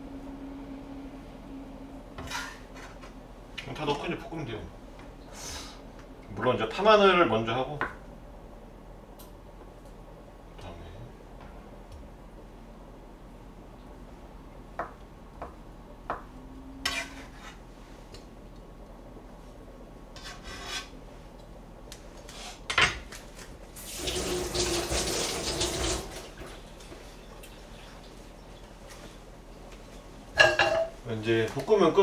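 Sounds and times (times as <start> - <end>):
scraping food off cutting board: 2.2 - 3.0, 16.8 - 17.6, 20.2 - 21.0.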